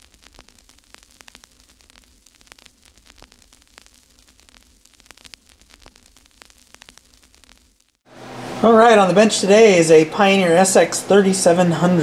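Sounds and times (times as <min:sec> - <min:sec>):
crackling static with pops: 0:00.0 - 0:08.1
low electrical hum: 0:00.0 - 0:12.0.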